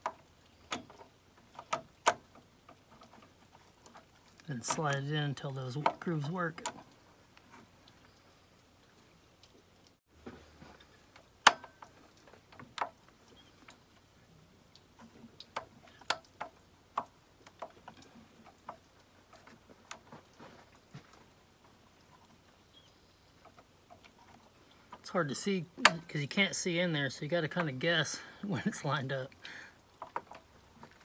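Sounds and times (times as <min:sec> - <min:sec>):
light metal clicks and knocks: 0:00.0 - 0:08.2, 0:10.2 - 0:14.1, 0:14.7 - 0:22.6.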